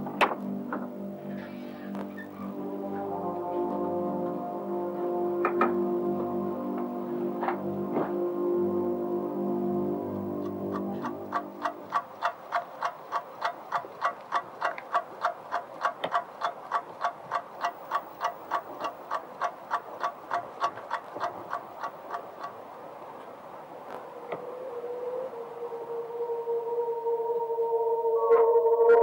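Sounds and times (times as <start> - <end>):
faint hiss: 0.0 - 28.4
clock ticking fast: 10.4 - 22.6.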